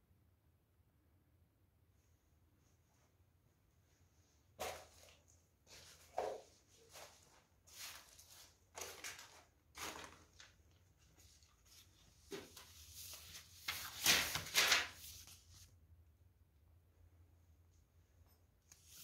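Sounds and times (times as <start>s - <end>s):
papers rustling and crunching: 6.9s - 15.3s.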